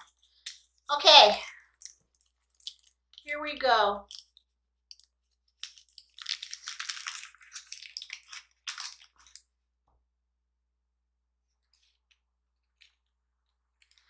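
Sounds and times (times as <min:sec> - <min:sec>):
crunch of crisp pastry: 0:00.0 - 0:03.3, 0:04.0 - 0:09.7.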